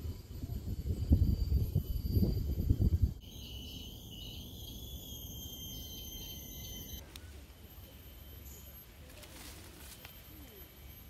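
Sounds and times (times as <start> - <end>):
wind buffeting microphone: 0.0 - 3.2
high-pitched insect drone: 0.0 - 11.0.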